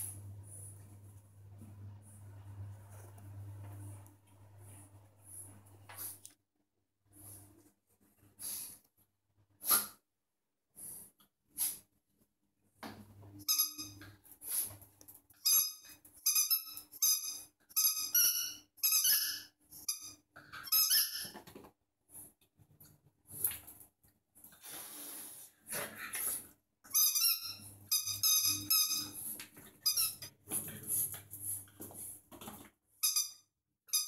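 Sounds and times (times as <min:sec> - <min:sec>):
squeaky rubber dog toy: 0:13.4 - 0:14.1, 0:15.4 - 0:21.4, 0:26.9 - 0:29.2, 0:29.8 - 0:30.3, 0:33.0 - 0:34.0.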